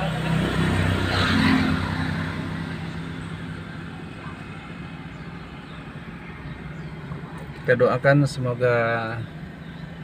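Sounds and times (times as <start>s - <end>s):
rush of passing vehicle: 0.0s - 7.7s
car engine hum: 0.0s - 10.0s.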